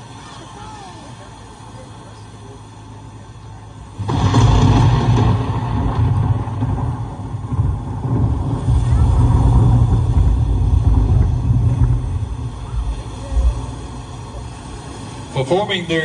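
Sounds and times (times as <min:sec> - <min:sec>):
wind buffeting microphone: 0:03.9 - 0:15.4.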